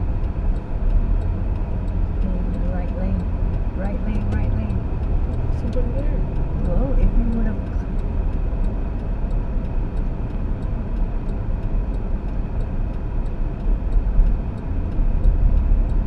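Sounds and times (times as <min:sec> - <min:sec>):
car cabin road and engine rumble: 0:00.0 - 0:16.0
faint regular ticking: 0:00.0 - 0:16.0.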